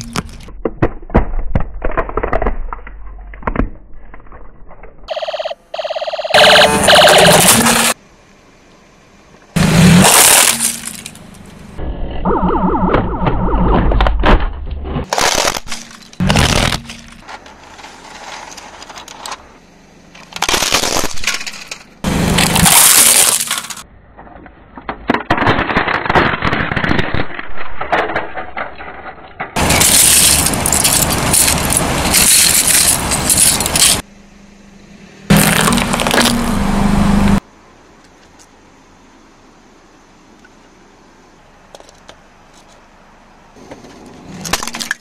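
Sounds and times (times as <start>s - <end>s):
tyre crushing plastic toys: 0.0s - 5.0s, 9.9s - 11.4s, 14.0s - 19.5s, 20.1s - 23.8s, 24.8s - 34.0s, 35.3s - 36.5s.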